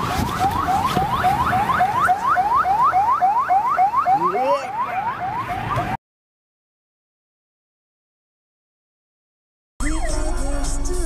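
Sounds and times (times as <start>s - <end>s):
electronic rising whoop warning tone: 9.8s - 10.7s.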